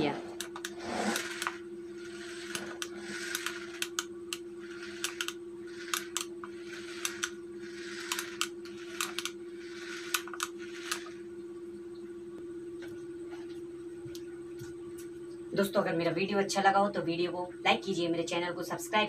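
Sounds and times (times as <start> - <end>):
steady hum: 0.0 - 19.0
small motors whirring: 0.4 - 11.3
sharp clicks: 2.5 - 6.3, 8.0 - 9.4.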